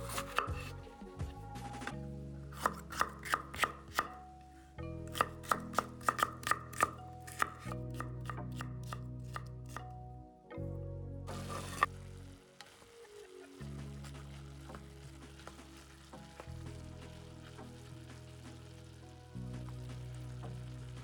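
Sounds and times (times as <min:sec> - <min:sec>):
music with sustained chords: 0:00.0 - 0:21.0
knife chopping on cutting board: 0:02.6 - 0:04.1, 0:05.1 - 0:08.4.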